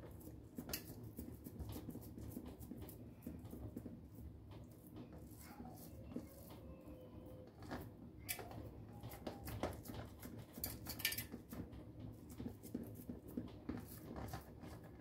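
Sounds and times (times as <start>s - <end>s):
soft squishes of minced meat: 0.0s - 15.0s
taps and clicks on metal tray: 9.1s - 11.7s.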